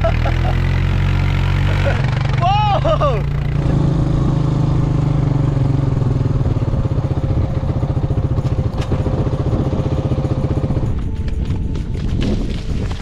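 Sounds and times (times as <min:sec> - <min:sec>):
quad bike engine running: 0:00.0 - 0:13.0.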